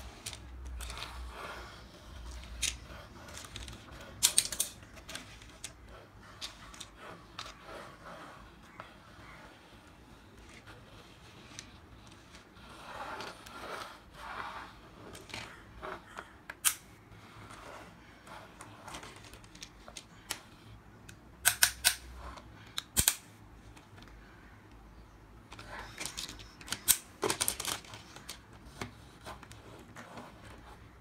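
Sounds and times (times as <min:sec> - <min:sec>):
toy scraping on wooden tabletop: 0:00.0 - 0:04.1, 0:05.0 - 0:16.3
plastic clicks and clacks: 0:25.5 - 0:30.1.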